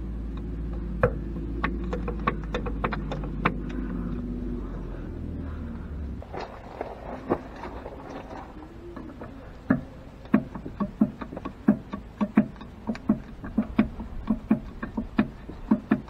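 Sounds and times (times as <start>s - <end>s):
grease gun clicking strokes: 8.0s - 16.0s.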